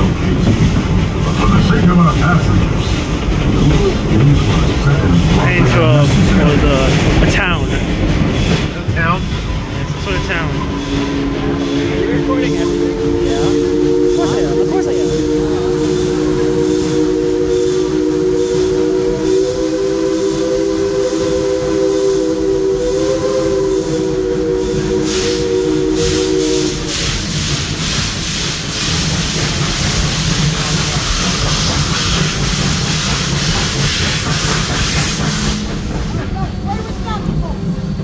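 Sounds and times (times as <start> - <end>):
train running with steady hiss: 0.0 - 38.0
steam locomotive chime whistle: 9.4 - 27.5.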